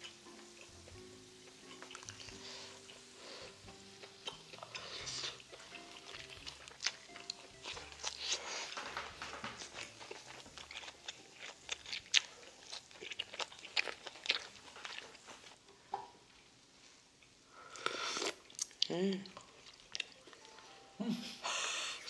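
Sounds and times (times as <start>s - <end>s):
chewing crunches: 1.5s - 3.1s, 4.0s - 15.6s.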